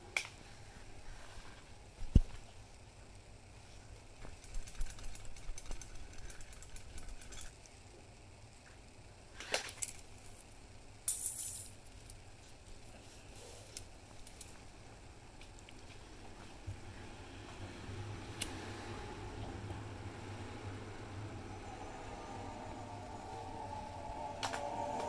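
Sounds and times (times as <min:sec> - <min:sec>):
umbrella ribs clicking and rattling: 0:04.3 - 0:07.6
rustling hiss: 0:09.2 - 0:25.0.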